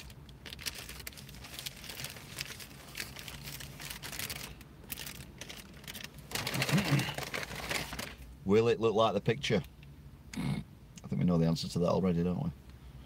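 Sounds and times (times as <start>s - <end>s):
paper wrapper crinkling: 0.0s - 8.3s.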